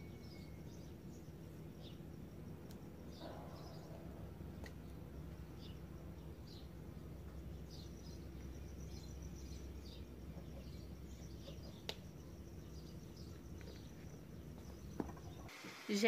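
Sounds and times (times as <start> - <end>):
thin steady high tone: 0.0 - 3.9
low steady hum: 0.0 - 15.5
small birds chirping: 0.0 - 15.5.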